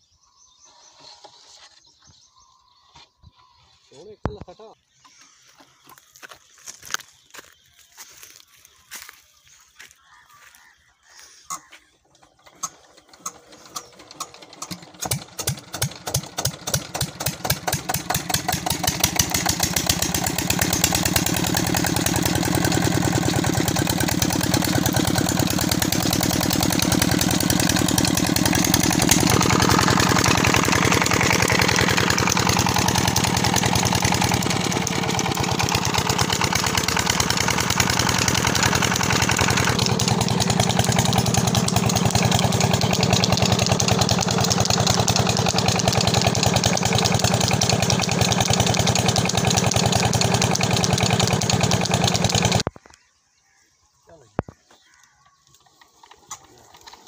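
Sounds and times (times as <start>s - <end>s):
diesel engine starting and running: 11.2s - 52.7s, 55.6s - 57.0s.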